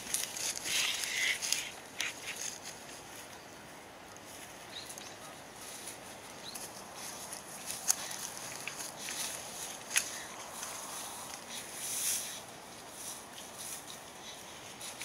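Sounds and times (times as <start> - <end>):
dog rustling through dry grass: 0.0 - 3.3, 4.2 - 15.0.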